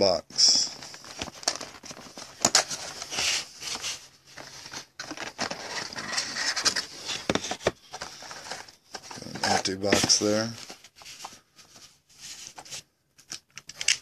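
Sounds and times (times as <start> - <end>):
cardboard box scraping and rustling: 1.3 - 11.2.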